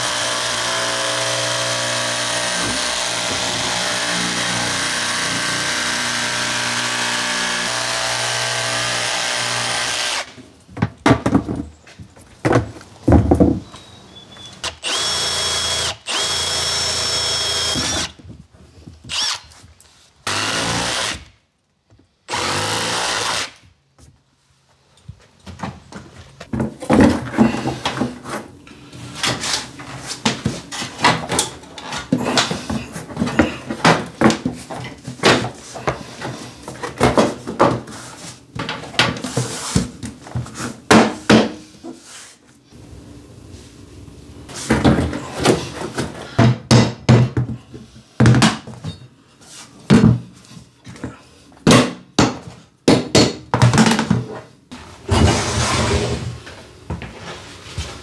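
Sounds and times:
floor planks knocking and clicking: 0:10.7 - 0:13.8, 0:25.1 - 0:28.4, 0:29.2 - 0:42.0, 0:44.6 - 0:49.0, 0:49.9 - 0:54.5.

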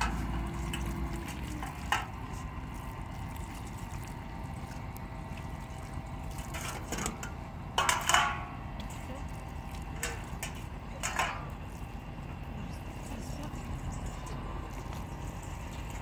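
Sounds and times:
running water: 0:00.0 - 0:16.0.

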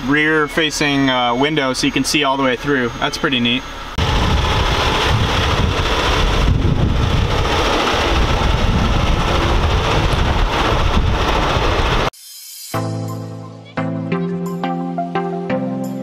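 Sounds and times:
diesel truck engine rumbling: 0:00.0 - 0:12.1.

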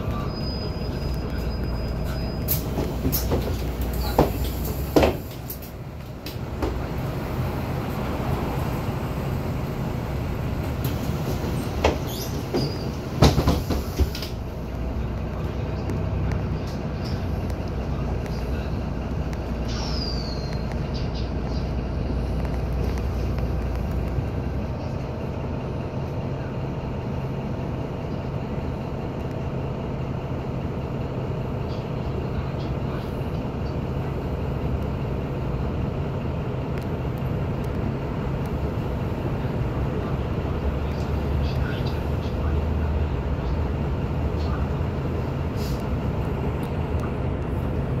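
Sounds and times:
high falling squeal: 0:00.0 - 0:02.7
bus diesel engine idling: 0:00.0 - 0:48.0.

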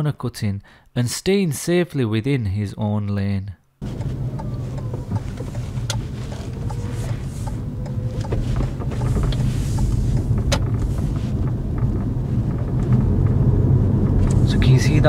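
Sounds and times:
car engine and tyre rumble: 0:03.8 - 0:15.0.

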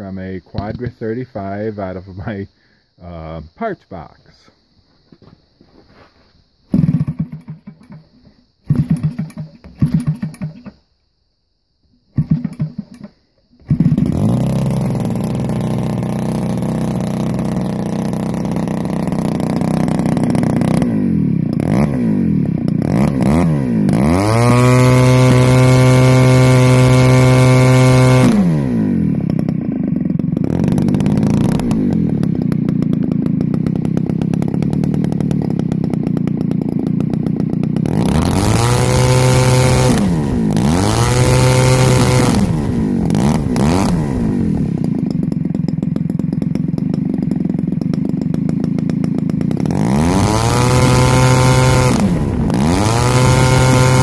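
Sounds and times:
model engine running: 0:12.2 - 0:54.0.

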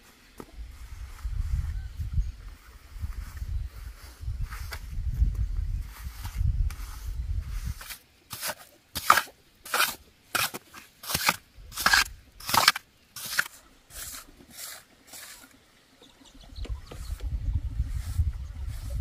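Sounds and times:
trowel scraping wet cement: 0:07.6 - 0:15.6.

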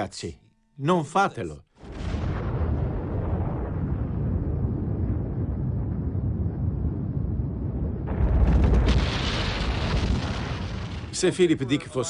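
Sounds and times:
rushing blast noise: 0:01.8 - 0:11.2
deep explosion rumble: 0:01.8 - 0:11.6.

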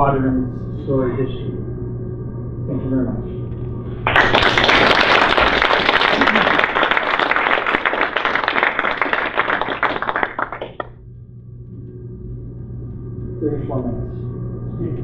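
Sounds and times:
audience applauding: 0:04.1 - 0:11.0.

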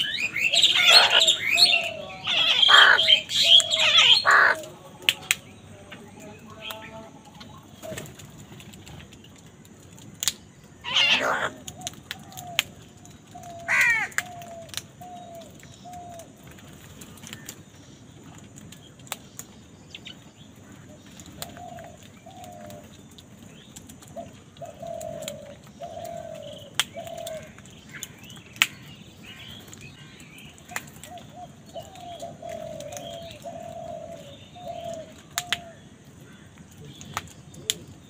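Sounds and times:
crows cawing: 0:00.0 - 0:04.8, 0:10.8 - 0:12.7, 0:13.4 - 0:15.4, 0:24.6 - 0:36.7
small birds chirping: 0:00.0 - 0:38.0.

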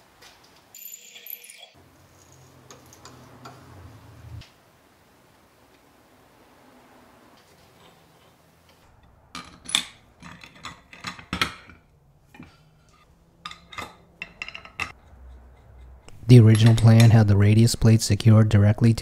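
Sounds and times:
faint room noise: 0:00.0 - 0:19.0
metal parts clicking on workbench: 0:09.0 - 0:12.5, 0:13.4 - 0:15.0.

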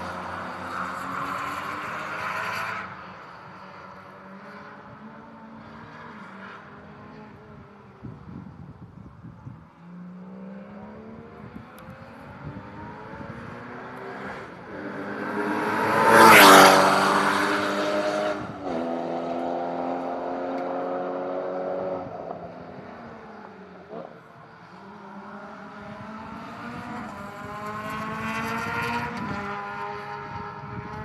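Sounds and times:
race car passing by: 0:09.7 - 0:31.0.

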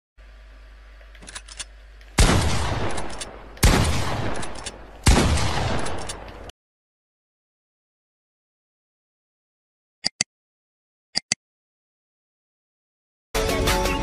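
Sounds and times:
gunshots with echo: 0:02.2 - 0:06.5.

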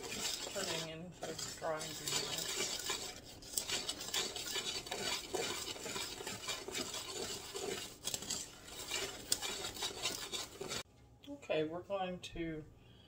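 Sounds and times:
utensil scraping mixing bowl: 0:00.0 - 0:10.9.

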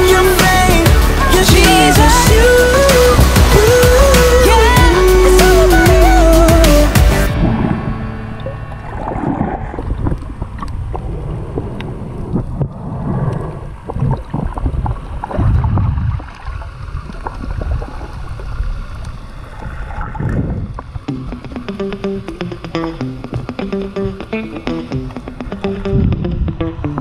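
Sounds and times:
muffled underwater water sloshing: 0:07.3 - 0:21.7.

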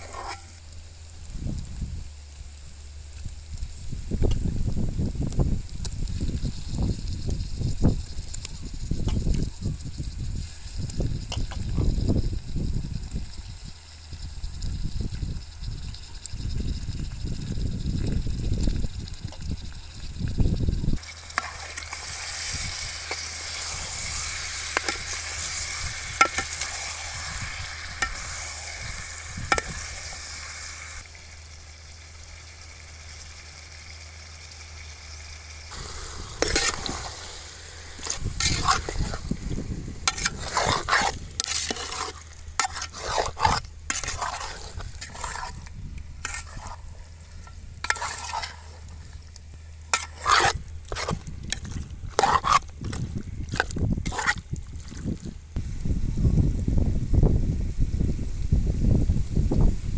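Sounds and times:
metal spoon scraping pot: 0:00.0 - 0:00.6, 0:21.0 - 0:30.2, 0:35.8 - 0:49.2, 0:49.8 - 0:55.1
steady hiss: 0:00.0 - 0:54.6.

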